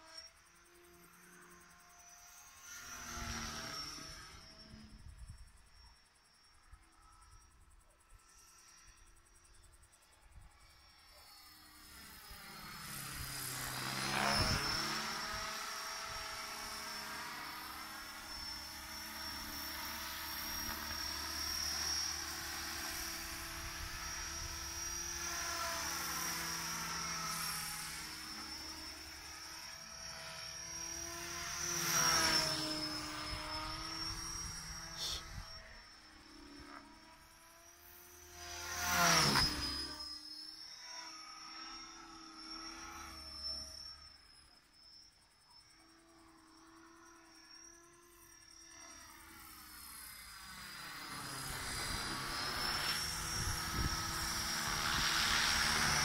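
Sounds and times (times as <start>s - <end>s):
model helicopter whine: 0.0s - 56.0s.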